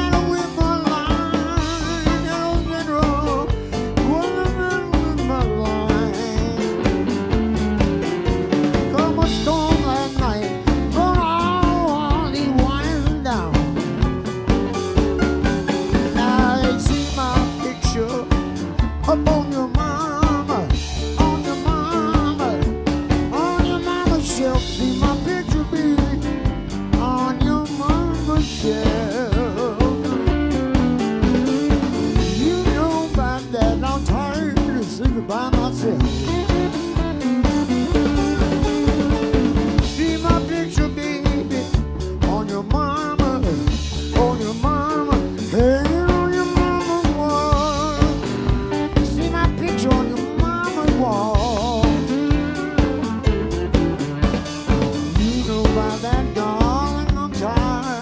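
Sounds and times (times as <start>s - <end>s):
bass guitar: 0.0s - 58.0s
drum kit steady beat: 0.0s - 58.0s
electric slide guitar: 34.4s - 41.8s, 43.5s - 56.6s.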